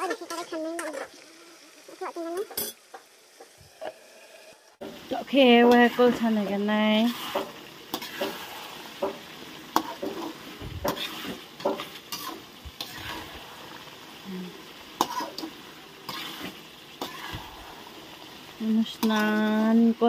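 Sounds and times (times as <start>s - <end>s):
meat sizzling: 0.0s - 20.0s
spatula scraping metal wok: 3.8s - 13.9s, 15.0s - 18.4s.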